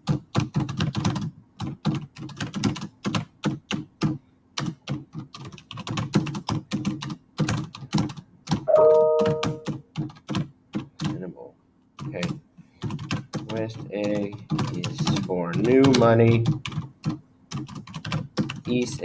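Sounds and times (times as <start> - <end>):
keyboard typing: 0.0 - 11.2, 12.0 - 19.0
brief steady tone: 8.7 - 9.7.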